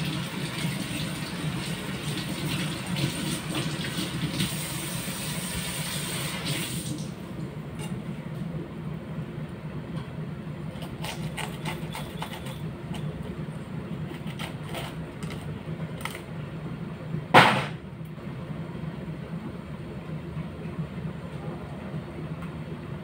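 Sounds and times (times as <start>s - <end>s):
steady low hum: 6.7s - 23.0s.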